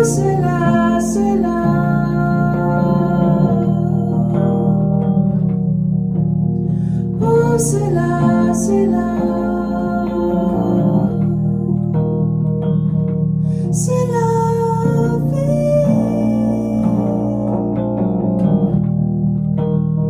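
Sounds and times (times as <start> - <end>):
woman singing: 0.0 - 5.0, 7.1 - 12.3, 13.7 - 18.0
piano chords: 0.0 - 20.0.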